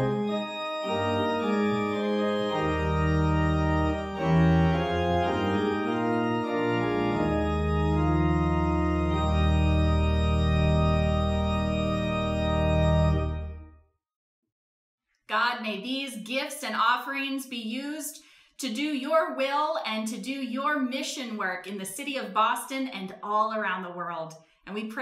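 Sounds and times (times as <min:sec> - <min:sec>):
organ playing held chords: 0:00.0 - 0:13.8.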